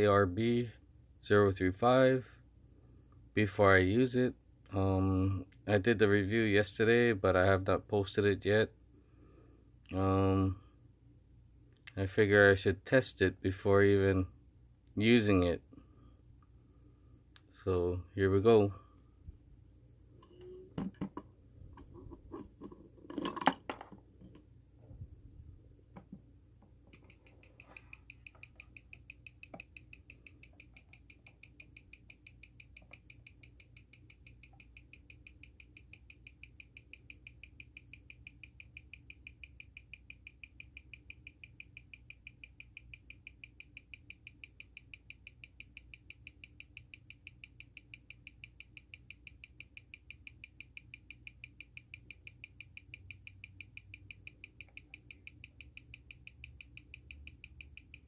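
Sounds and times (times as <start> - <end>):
watch ticking: 26.9 - 58.0.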